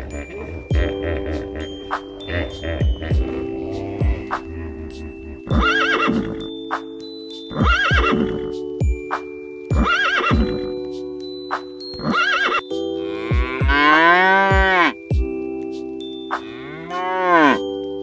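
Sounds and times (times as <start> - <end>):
background music with plucked notes: 0.0 - 18.0
horse whinnying: 5.3 - 6.5, 7.5 - 8.5, 9.8 - 10.7, 12.0 - 12.7
cow mooing: 13.0 - 15.0, 16.4 - 17.6.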